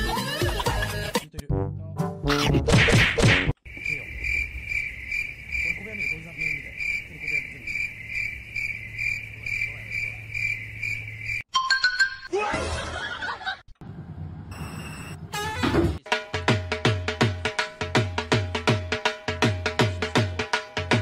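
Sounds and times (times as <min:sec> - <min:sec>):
music: 0:00.0 - 0:03.5, 0:16.0 - 0:21.0
high insect-like chirping: 0:03.6 - 0:11.5.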